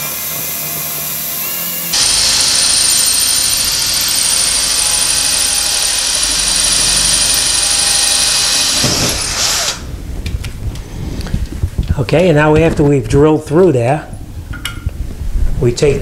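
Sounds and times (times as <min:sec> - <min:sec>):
cordless drill whining: 0:00.0 - 0:09.9.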